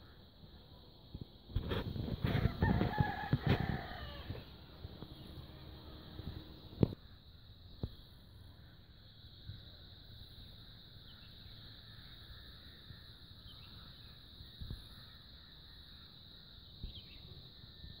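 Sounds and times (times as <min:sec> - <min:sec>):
low thumps on microphone: 0:01.5 - 0:03.8
bird chirps: 0:16.5 - 0:18.0.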